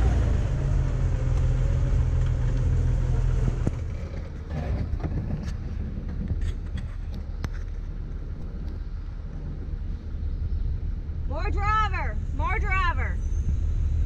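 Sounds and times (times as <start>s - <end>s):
engine running under load: 0.0s - 14.0s.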